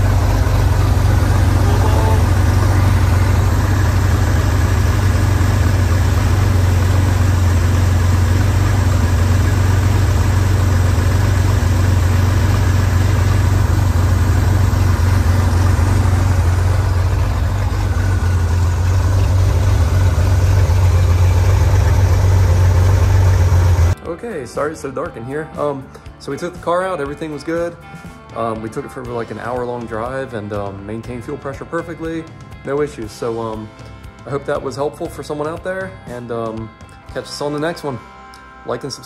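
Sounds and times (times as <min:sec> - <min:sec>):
car engine idling: 0:00.0 - 0:24.0.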